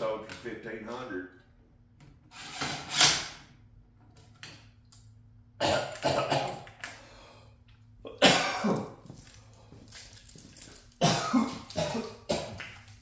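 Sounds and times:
man coughing: 0:05.6 - 0:06.6, 0:08.0 - 0:09.0, 0:11.0 - 0:12.6.

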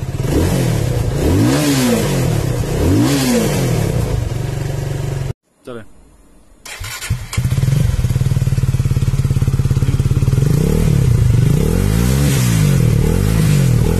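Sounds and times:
motorcycle engine starting and idling: 0:00.0 - 0:05.3, 0:06.6 - 0:13.9.

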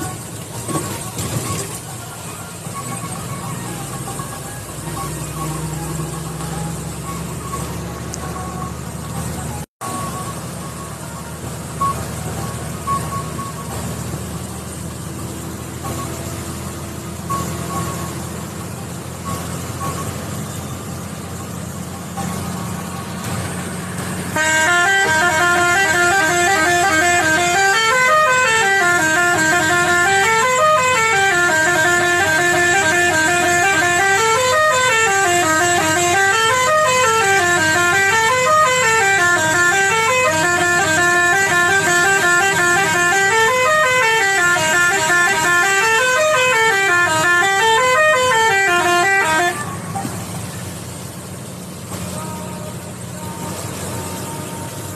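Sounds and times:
truck engine and road noise: 0:00.0 - 0:54.9
musical horn playing a tune: 0:24.3 - 0:50.0.

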